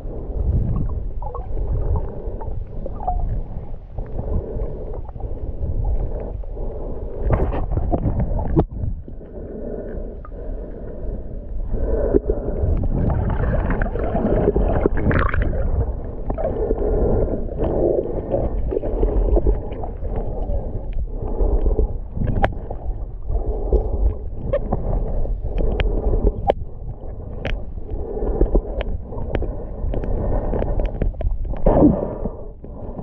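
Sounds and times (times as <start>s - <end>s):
underwater rumble and gurgling: 0.0s - 33.0s
sharp underwater clicks: 23.4s - 26.6s, 27.2s - 33.0s.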